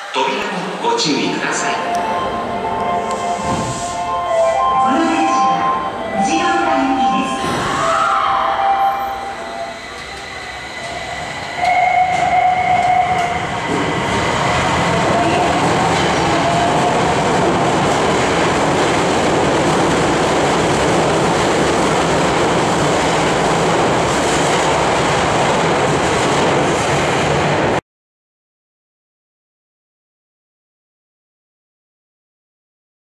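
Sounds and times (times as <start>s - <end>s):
train held tone: 0.0s - 17.3s
train wheels rumbling: 0.8s - 27.8s
train motor whine: 7.4s - 16.8s.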